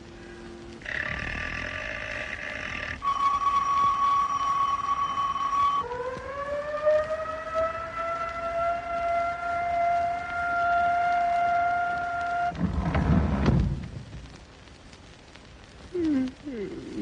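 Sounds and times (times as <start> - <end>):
siren winding up: 1.0 - 12.4.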